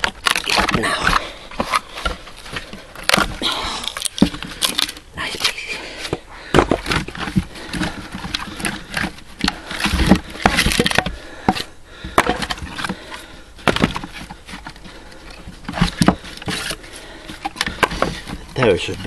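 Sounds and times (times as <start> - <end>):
axe splitting wood cracks: 0.0 - 5.1, 6.5 - 13.0, 13.6 - 14.7
firewood knocking and clattering: 0.0 - 5.3, 6.0 - 19.0.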